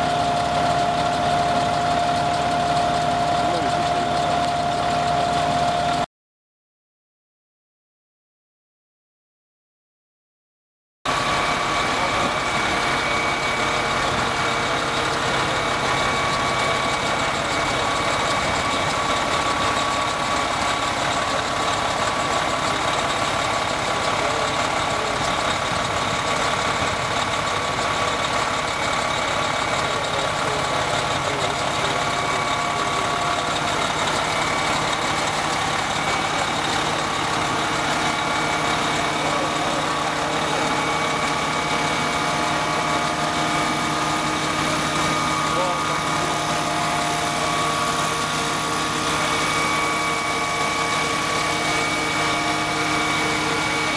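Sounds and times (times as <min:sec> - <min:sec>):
diesel engine idling: 0:00.0 - 0:06.1, 0:11.1 - 0:53.9
thin steady whine: 0:11.1 - 0:53.9.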